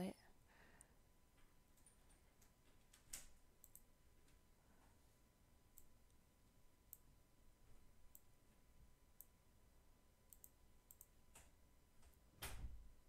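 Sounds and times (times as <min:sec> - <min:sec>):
computer mouse clicks: 0:02.4 - 0:03.9, 0:05.7 - 0:06.2, 0:06.9 - 0:07.1, 0:08.1 - 0:08.3, 0:09.2 - 0:09.4, 0:10.3 - 0:12.2.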